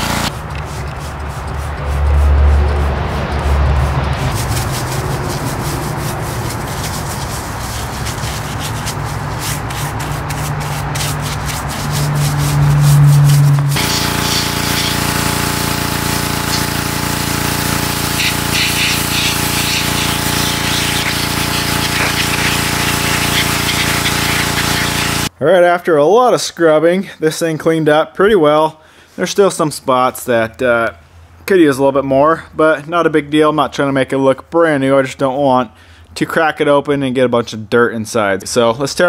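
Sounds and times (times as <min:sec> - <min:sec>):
pressure washer pump running: 0:00.0 - 0:25.3
stiff brush scrubbing: 0:00.0 - 0:25.3
water jet hissing on metal: 0:10.9 - 0:25.3.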